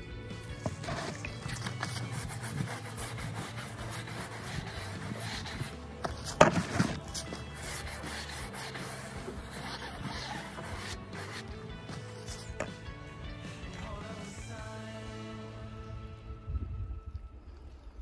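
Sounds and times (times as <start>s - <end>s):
knock and scrape: 0.6s - 11.4s
foam applicator rubbing on tire: 0.6s - 12.7s.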